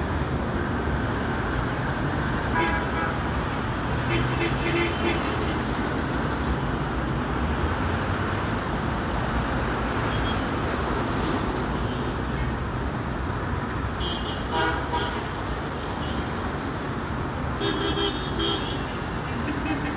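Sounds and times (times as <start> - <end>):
road traffic: 0.0 - 19.9.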